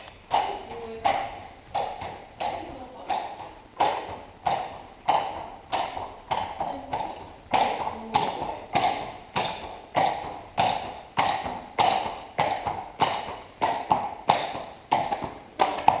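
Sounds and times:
horse hooves clopping on concrete: 0:00.0 - 0:16.0.

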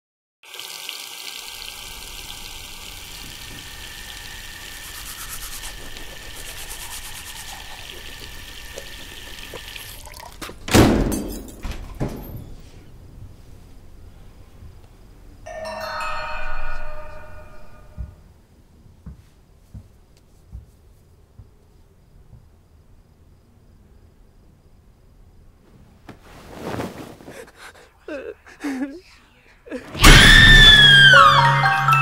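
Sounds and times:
water running into a sink: 0:00.4 - 0:10.6
toothbrush scrubbing: 0:04.1 - 0:10.2.

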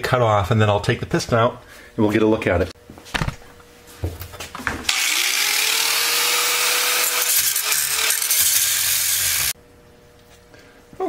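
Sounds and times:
angle grinder motor whine: 0:04.9 - 0:09.6
grinder disc cutting metal: 0:04.9 - 0:09.6.

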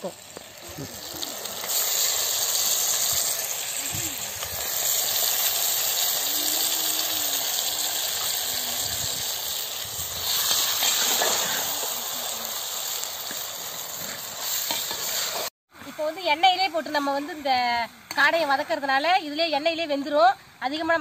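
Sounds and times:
meat sizzling in hot oil: 0:00.0 - 0:15.5.

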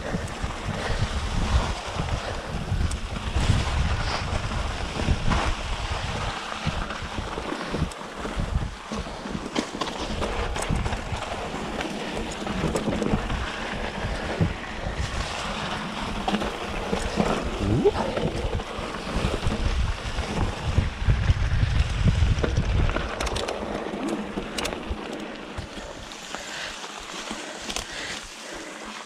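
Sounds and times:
wind buffeting microphone: 0:00.0 - 0:09.0, 0:10.0 - 0:26.0
bike clicks and knocks: 0:21.8 - 0:26.5.

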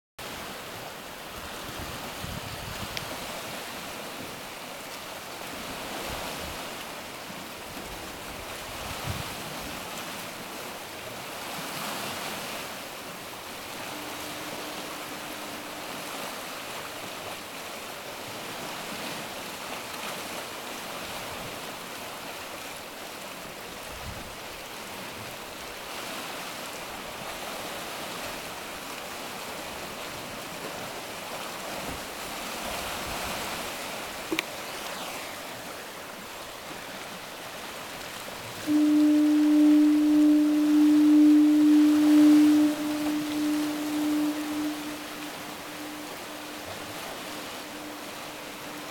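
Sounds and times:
sea surf on rocks: 0:00.2 - 0:48.9
faint steady tone: 0:10.2 - 0:19.0, 0:34.3 - 0:37.1, 0:38.6 - 0:48.9.

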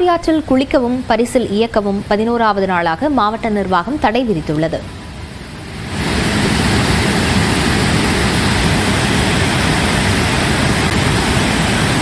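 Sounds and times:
rushing white water: 0:04.9 - 0:12.0.

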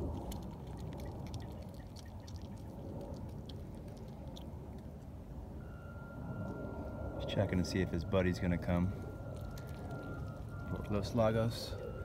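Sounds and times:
fox chewing wet clicks: 0:00.0 - 0:05.3, 0:09.0 - 0:11.9
low background rumble: 0:00.0 - 0:12.0.

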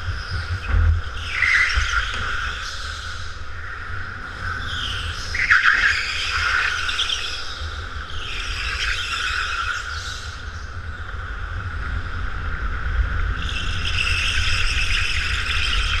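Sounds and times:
steady low rumble: 0:00.0 - 0:05.4, 0:09.9 - 0:16.0
go-kart tyres squealing: 0:04.6 - 0:10.1.

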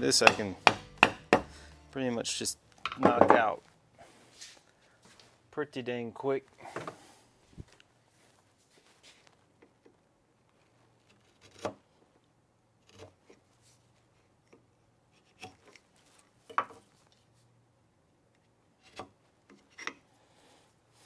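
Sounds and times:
wood chisel paring: 0:00.0 - 0:01.6, 0:11.2 - 0:11.8.

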